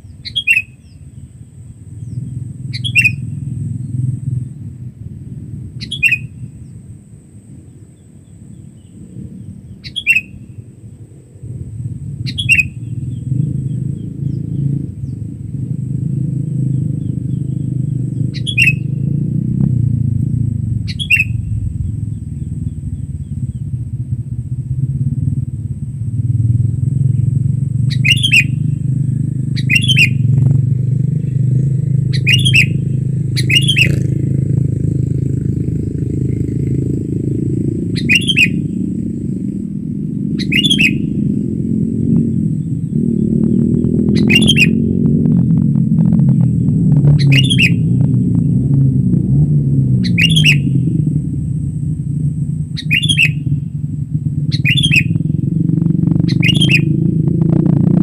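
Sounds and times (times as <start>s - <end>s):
bird sharp call notes: 0.0s - 3.4s, 5.8s - 6.7s, 9.6s - 10.6s, 12.3s - 15.2s, 16.7s - 19.1s, 20.8s - 23.7s, 27.9s - 30.4s, 32.0s - 34.2s, 37.4s - 39.2s, 40.1s - 41.4s, 42.0s - 44.9s, 46.6s - 48.0s, 50.0s - 51.0s, 52.8s - 53.6s, 54.5s - 57.1s
low rumble: 0.0s - 58.0s.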